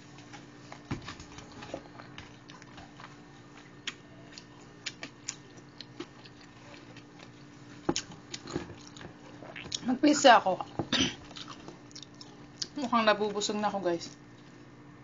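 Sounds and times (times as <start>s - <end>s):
faint steady hum: 0.0s - 15.0s
chewing with wet mouth clicks: 1.9s - 9.8s, 11.3s - 12.8s.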